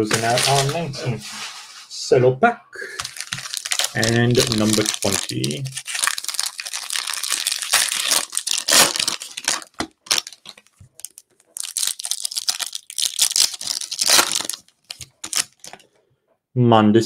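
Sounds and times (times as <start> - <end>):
plastic wrapper tearing and crinkling: 0.1 - 0.8, 2.9 - 15.8.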